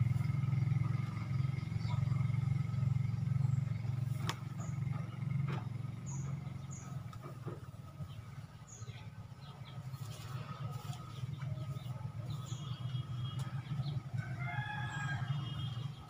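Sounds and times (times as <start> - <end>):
bird chirps: 1.4 - 14.1.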